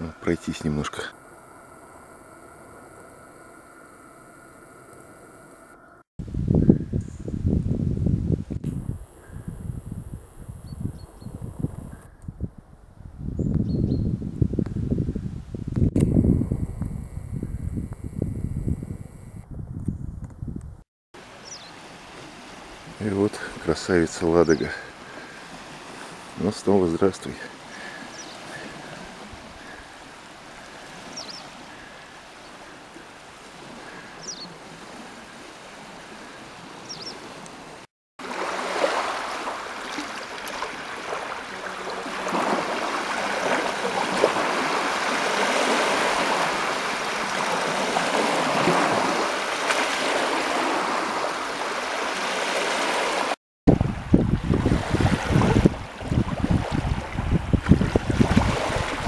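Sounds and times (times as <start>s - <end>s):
wind buffeting microphone: 6.2s - 20.8s, 53.7s - 59.0s
small waves lapping on sand: 21.2s - 59.0s.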